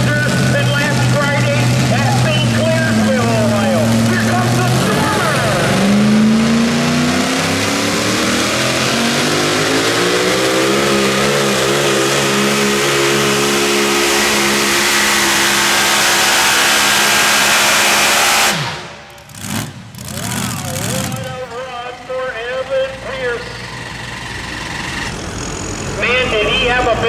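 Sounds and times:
truck engine at full throttle: 0:00.0 - 0:27.0.

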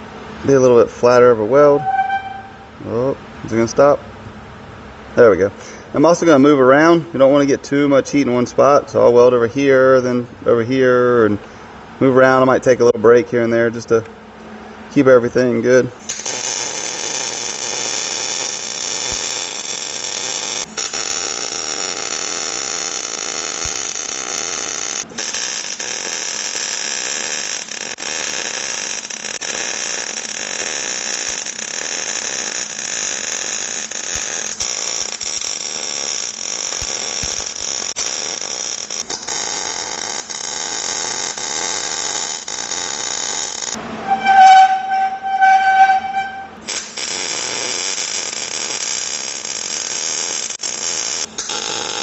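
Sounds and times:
welding arc crackling: 0:16.1 - 0:43.8, 0:46.6 - 0:52.0.

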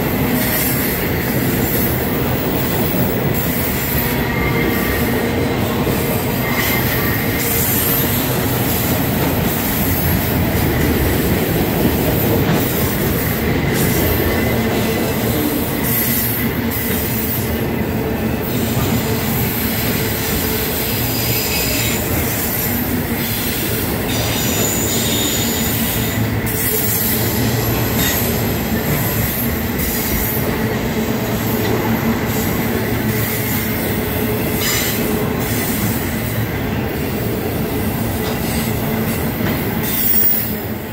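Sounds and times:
steel wheels rumbling on rail: 0:00.0 - 0:40.9
high wheel squeal: 0:18.4 - 0:28.4.

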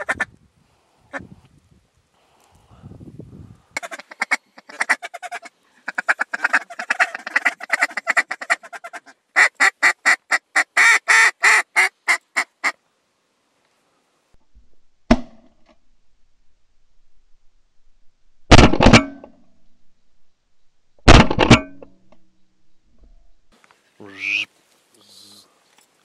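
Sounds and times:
duck call quacking: 0:03.8 - 0:12.8, 0:24.1 - 0:24.5
sharp knock: 0:15.1 - 0:15.5, 0:18.5 - 0:19.3, 0:21.1 - 0:21.9.

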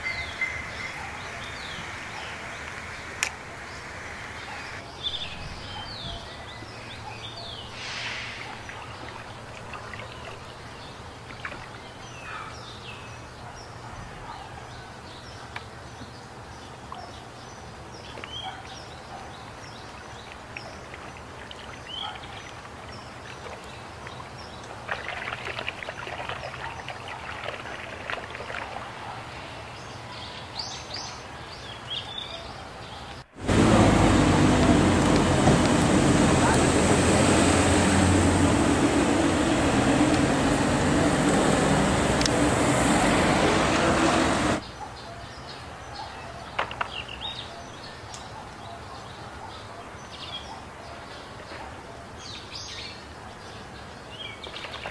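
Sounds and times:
small birds chirping: 0:00.0 - 0:27.8
water splashing in a tub: 0:07.9 - 0:11.9, 0:19.6 - 0:29.0, 0:54.4 - 0:54.9.

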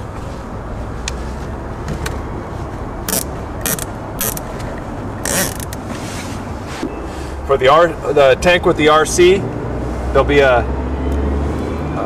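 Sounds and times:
zip tie rasping: 0:03.1 - 0:04.4, 0:05.2 - 0:05.8.

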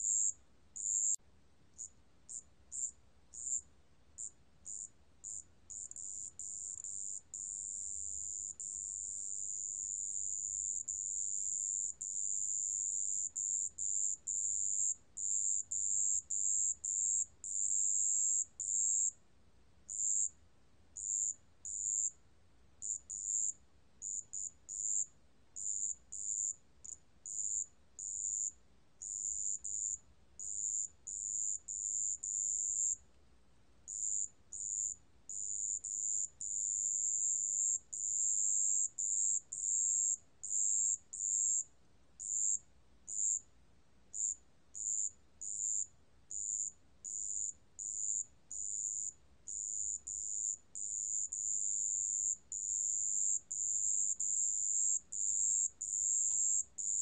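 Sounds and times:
cricket trilling: 0:00.0 - 0:01.2, 0:01.8 - 0:03.6, 0:19.9 - 0:20.3, 0:21.0 - 0:22.1, 0:22.8 - 0:33.0, 0:33.9 - 0:41.6, 0:42.2 - 0:43.4, 0:44.1 - 0:57.0.

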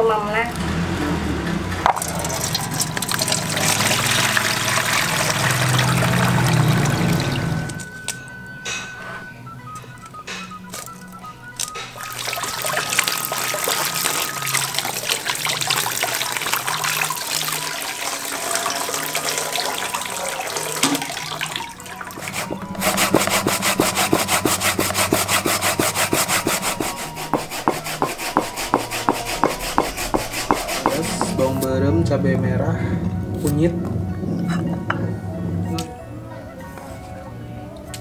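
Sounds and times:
water trickling: 0:01.9 - 0:07.9, 0:12.0 - 0:23.4
hands rubbing wet fish: 0:22.2 - 0:31.4
scraping in plastic bowl: 0:22.2 - 0:31.6.

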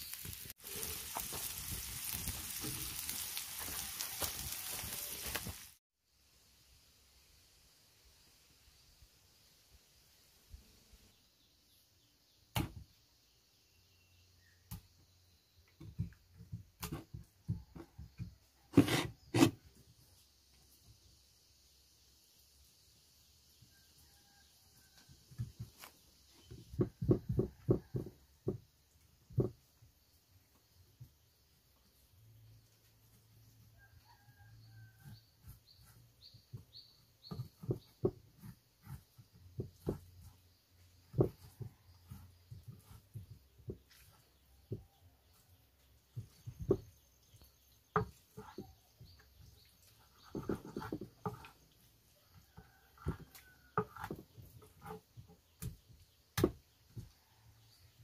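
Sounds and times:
knife knocking on wooden board: 0:26.5 - 0:28.6.

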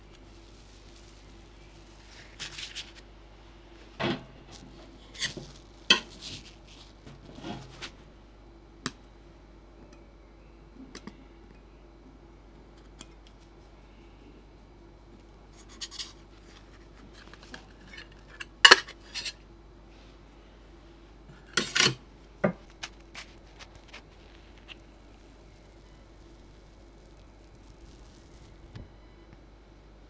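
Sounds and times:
paper rustling on a cake: 0:00.0 - 0:03.1, 0:03.8 - 0:08.0, 0:22.6 - 0:28.9.

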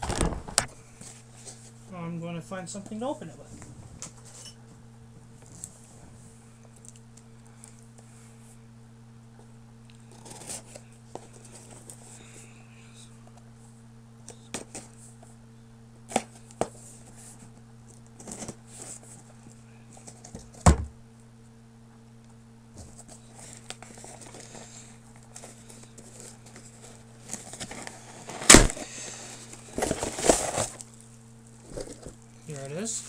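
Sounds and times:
package thump: 0:00.0 - 0:00.7, 0:20.3 - 0:20.9, 0:27.6 - 0:28.9
low electrical hum: 0:00.0 - 0:33.0
package clicks and scrapes: 0:10.0 - 0:12.1, 0:16.1 - 0:19.3, 0:22.8 - 0:31.0, 0:31.6 - 0:32.7
packaging rustling and crinkling: 0:22.8 - 0:33.0.

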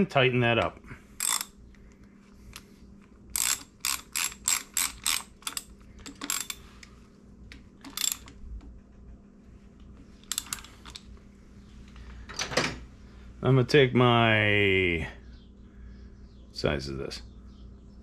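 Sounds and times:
socket ratchet clicking: 0:01.2 - 0:01.6, 0:03.3 - 0:06.6, 0:07.8 - 0:08.4, 0:10.2 - 0:11.0.

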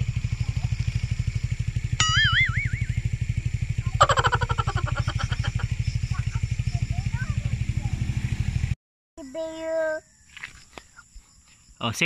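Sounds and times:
engine idling: 0:00.0 - 0:08.8
short warbling high tone: 0:02.0 - 0:03.0.

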